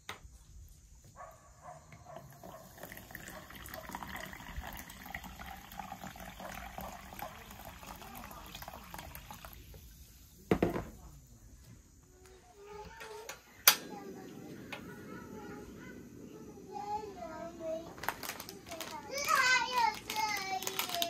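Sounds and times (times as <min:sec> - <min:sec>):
water running from a tap: 0:02.3 - 0:10.0.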